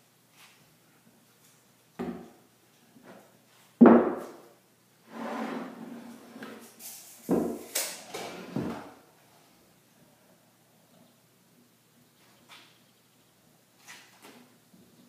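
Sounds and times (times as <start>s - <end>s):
wood knocking on workbench: 3.8s - 4.4s.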